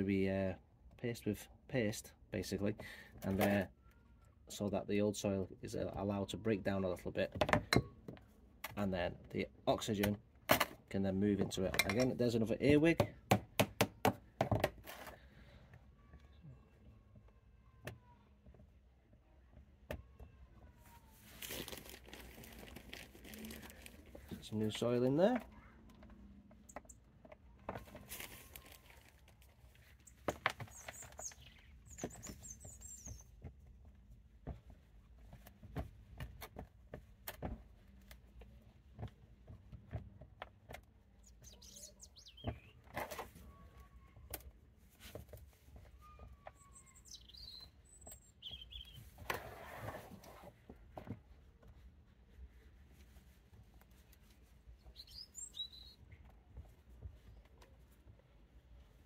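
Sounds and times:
hands working potting soil: 0:14.0 - 0:59.0
small birds chirping: 0:23.2 - 0:29.0, 0:29.6 - 0:33.6, 0:40.9 - 0:44.3, 0:45.7 - 0:49.2, 0:54.0 - 0:58.0.

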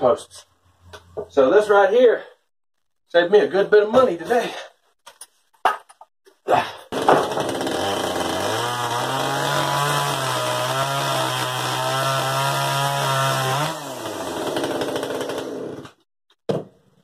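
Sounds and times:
chainsaw cutting wood: 0:06.9 - 0:16.0.

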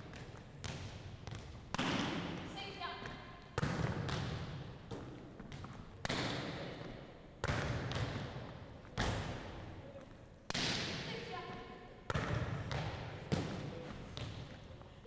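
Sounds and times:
volleyball smacking gym floor: 0:00.2 - 0:02.4, 0:03.1 - 0:06.6, 0:10.5 - 0:11.0.

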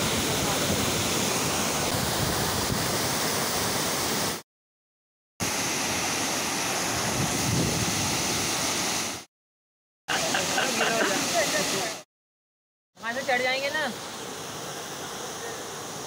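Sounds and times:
waterfall rushing: 0:00.0 - 0:04.4, 0:05.4 - 0:09.3, 0:10.1 - 0:12.0, 0:13.0 - 0:16.0.

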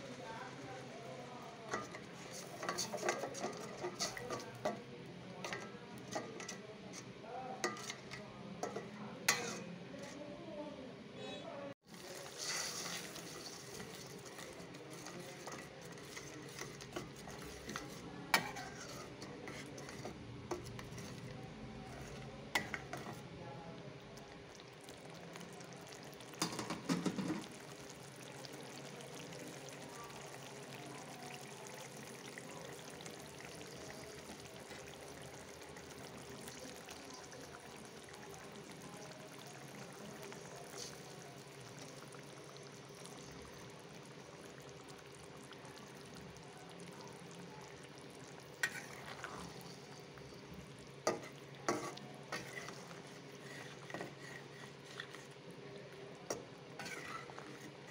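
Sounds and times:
curry simmering and sizzling: 0:00.0 - 0:10.4, 0:11.3 - 0:57.9
metal spatula scraping wok: 0:01.7 - 0:04.7, 0:05.5 - 0:10.2, 0:12.0 - 0:21.3, 0:48.6 - 0:49.9, 0:51.0 - 0:55.3, 0:56.3 - 0:57.9.

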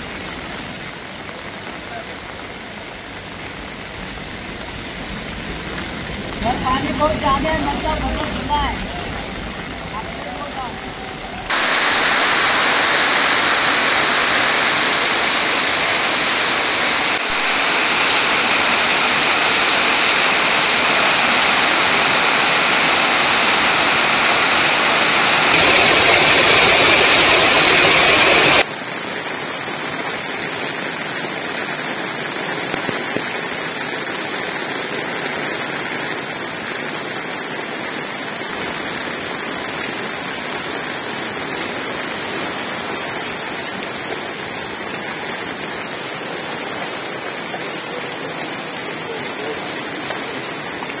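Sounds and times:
heavy rain on concrete: 0:00.0 - 0:51.0
rain splashing into plastic basin: 0:00.0 - 0:51.0.

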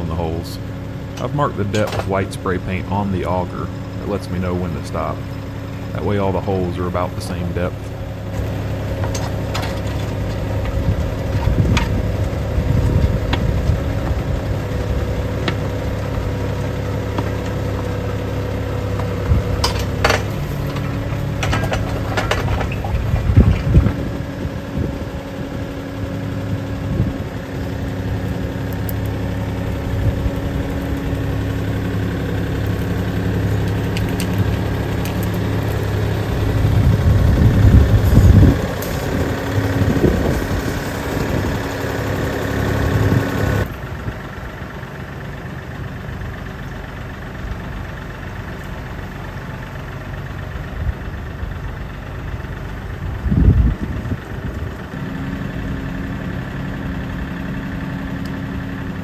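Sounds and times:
tractor diesel engine running: 0:00.0 - 0:59.0
sharp metal clanks: 0:19.6 - 0:22.9.

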